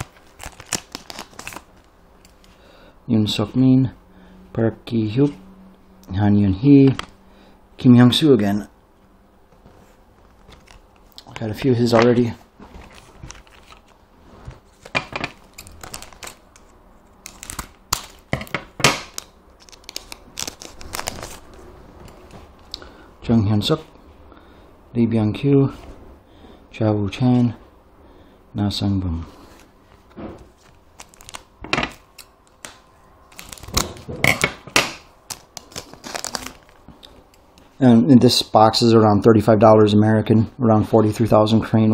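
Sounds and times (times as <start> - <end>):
foil wrapper crinkling and tearing: 0.0 - 2.4, 14.7 - 22.3, 30.6 - 36.8.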